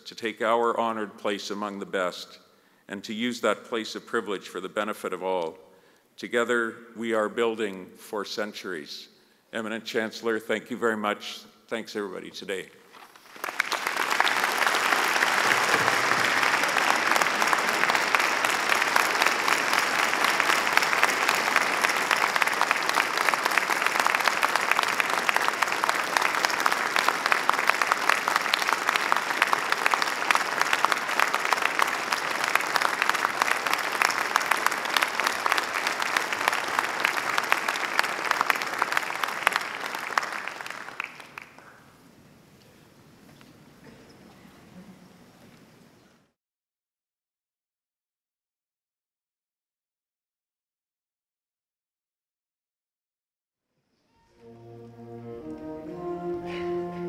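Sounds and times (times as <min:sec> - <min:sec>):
large audience applauding: 0:13.0 - 0:41.8.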